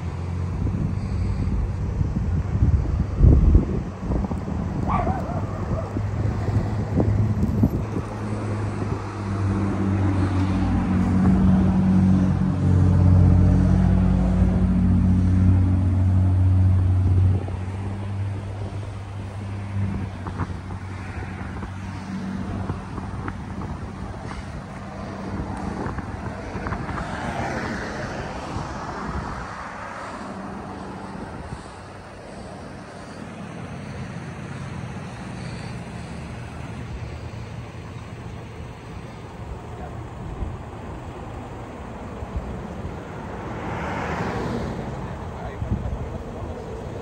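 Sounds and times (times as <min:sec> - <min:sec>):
road traffic: 0:00.0 - 0:47.0
vehicle engine hum: 0:00.0 - 0:47.0
cars idling: 0:28.1 - 0:43.7.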